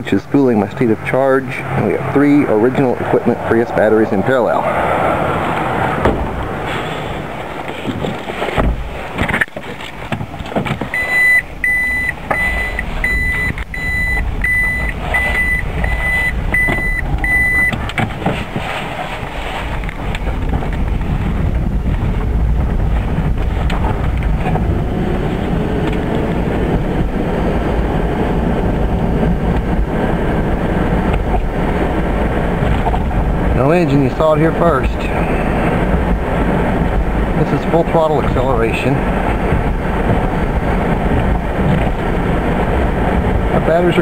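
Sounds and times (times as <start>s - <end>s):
road and tyre rumble: 0.0s - 44.0s
reverse warning beeps: 10.9s - 17.8s.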